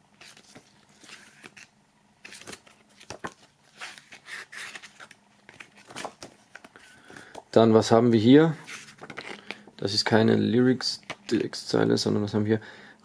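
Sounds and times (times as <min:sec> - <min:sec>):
paper pages rustling: 0:00.2 - 0:07.4, 0:08.6 - 0:09.6.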